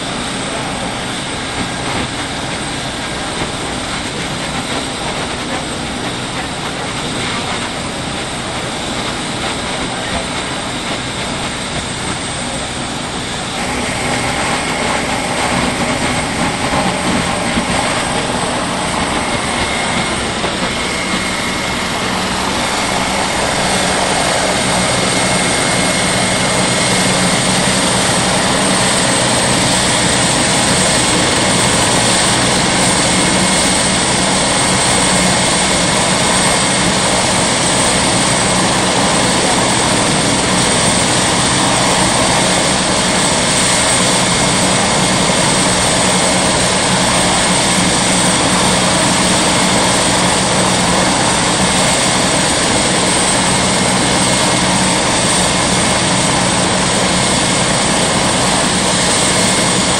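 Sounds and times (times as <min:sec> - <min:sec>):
helicopter turbine whine: 0:00.0 - 0:59.9
low hum: 0:02.8 - 0:35.1.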